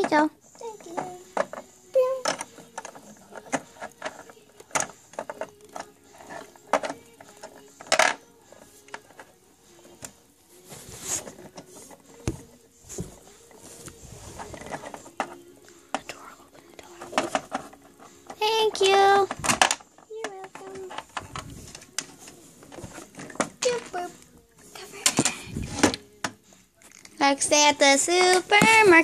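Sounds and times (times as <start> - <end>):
rustling: 1.0 - 15.8.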